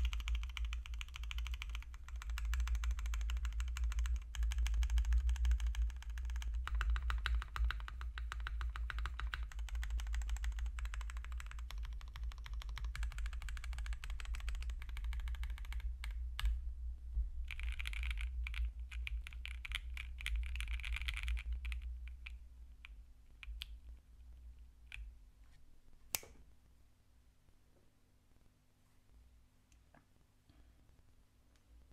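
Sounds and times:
fast typing on mechanical keyboard: 0:00.0 - 0:16.2, 0:17.5 - 0:22.2.

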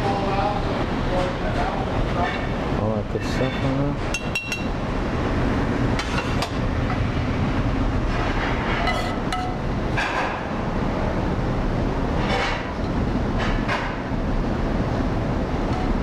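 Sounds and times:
kitchen machinery rumble: 0:00.0 - 0:16.0
metal spoon clinking on pans: 0:03.5 - 0:04.7, 0:08.9 - 0:09.6.

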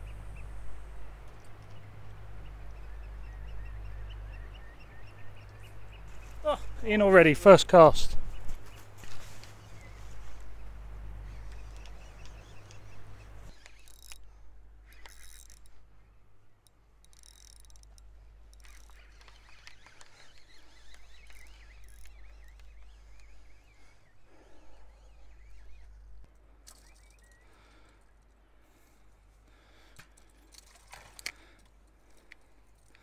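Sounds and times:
low rumble of wind or surf: 0:00.0 - 0:13.6
shorebirds chirping: 0:00.0 - 0:33.0
fishing reel clicks and knocks: 0:13.5 - 0:14.3, 0:14.9 - 0:15.8, 0:16.6 - 0:23.3, 0:26.7 - 0:27.5.

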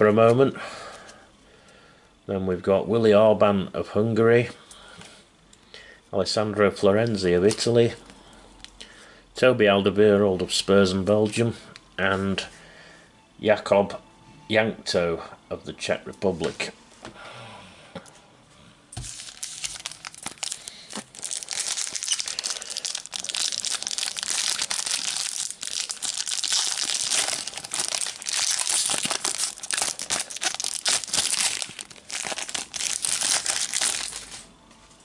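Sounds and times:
foil wrapper tearing and crinkling: 0:19.0 - 0:34.5.

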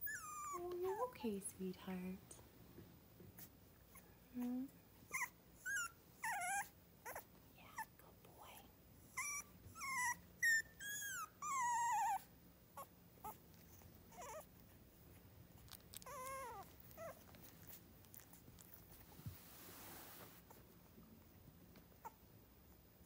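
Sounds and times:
puppy whimpering: 0:00.0 - 0:01.0, 0:03.9 - 0:07.9, 0:09.1 - 0:14.7, 0:15.6 - 0:18.9, 0:22.0 - 0:22.2.

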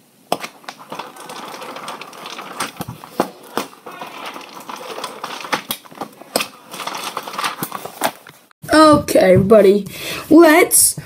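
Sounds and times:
rustling paper: 0:00.4 - 0:08.5.

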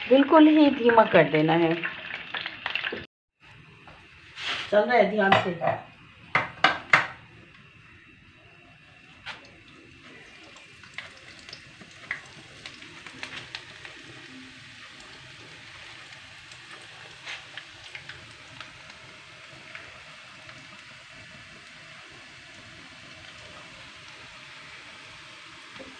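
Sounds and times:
dough frying in hot fat: 0:00.0 - 0:25.9
small crackles and clicks: 0:09.2 - 0:19.0.

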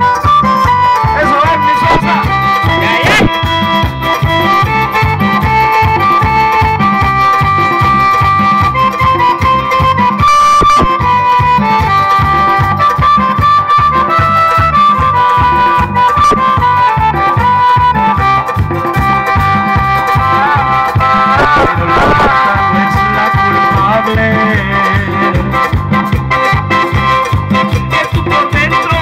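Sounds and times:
electronic keyboard melody: 0:00.0 - 0:29.0
fast hand drum beat: 0:00.8 - 0:29.0.

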